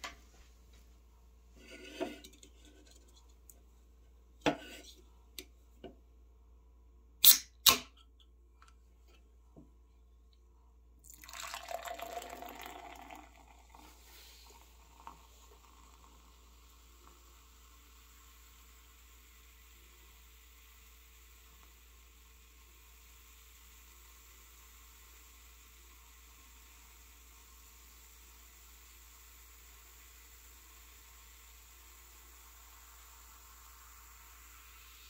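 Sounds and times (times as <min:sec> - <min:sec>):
can tab snapping open: 0:07.2 - 0:08.0
cola pouring and fizzing: 0:11.0 - 0:35.0.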